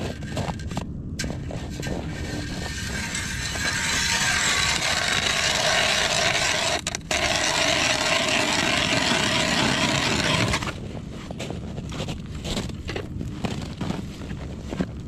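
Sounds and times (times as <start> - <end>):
loud scraping and grinding: 0.0 - 10.8
irregular crunches: 0.0 - 15.0.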